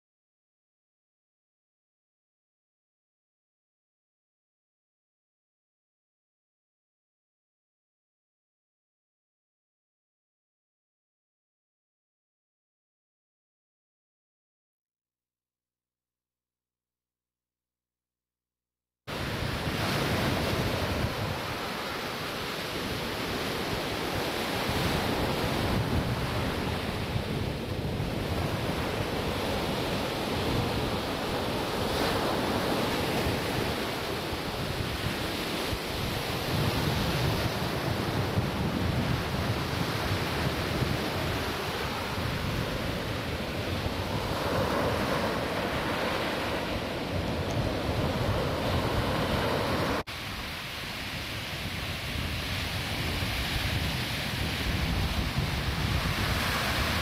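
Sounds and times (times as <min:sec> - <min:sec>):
surf breaking on beach: 0:19.1 - 0:57.0
wind buffeting microphone: 0:19.2 - 0:57.0.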